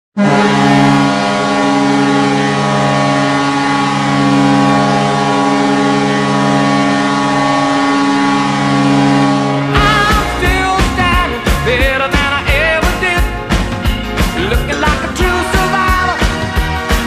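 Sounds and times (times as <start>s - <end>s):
air horn blast: 0.1s - 13.5s.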